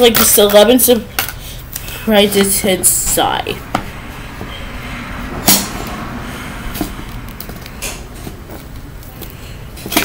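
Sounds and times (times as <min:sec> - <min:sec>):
loud sharp sound: 0:03.6 - 0:07.0.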